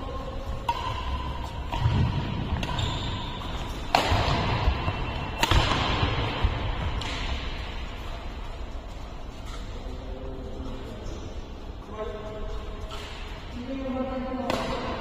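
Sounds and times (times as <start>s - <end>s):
racket hitting shuttlecock: 0.4s - 8.1s, 14.4s - 15.0s.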